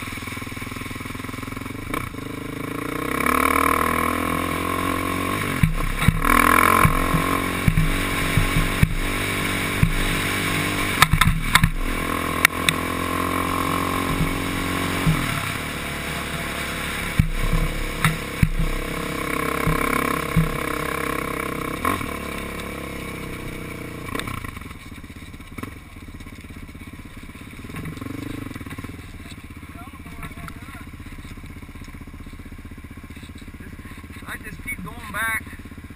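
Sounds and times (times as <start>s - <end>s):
atv engine under throttle: 0.0s - 35.9s
clattering knocks over bumps: 5.5s - 10.2s, 10.9s - 12.1s, 14.0s - 15.5s, 17.1s - 21.0s, 24.1s - 32.0s.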